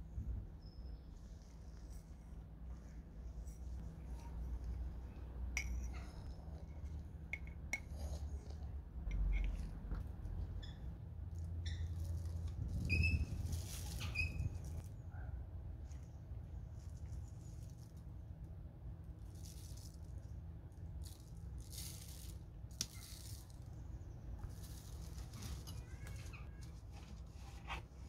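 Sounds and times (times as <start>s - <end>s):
steady low hum: 0.0s - 25.5s
rustling handling noises: 11.4s - 14.9s, 19.2s - 28.0s.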